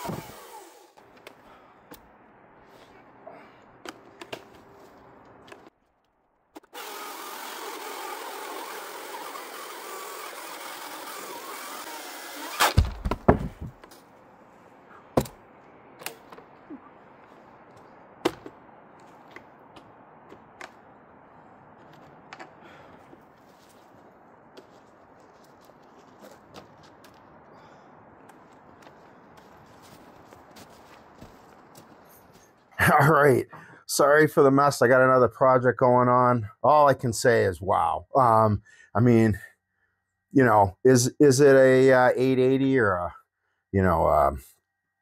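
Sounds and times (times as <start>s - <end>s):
electric chainsaw cutting log: 0.0s - 1.0s, 6.6s - 13.0s
heavy thuds of wood dropping: 12.6s - 13.9s, 15.2s - 15.4s, 18.2s - 18.6s.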